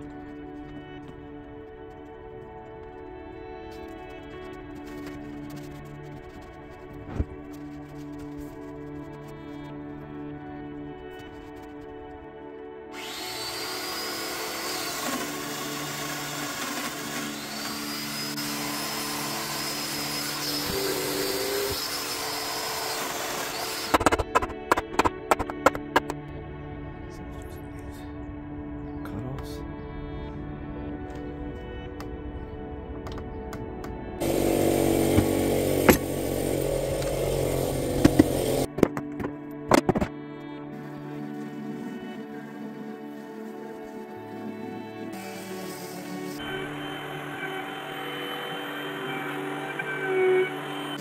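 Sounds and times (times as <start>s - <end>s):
background music: 0.0s - 51.0s
dust extractor rushing: 13.0s - 25.8s, 34.2s - 38.7s
power tool motor whining: 13.0s - 26.1s, 34.2s - 38.7s, 45.2s - 51.0s
sharp knocks: 24.0s - 26.2s.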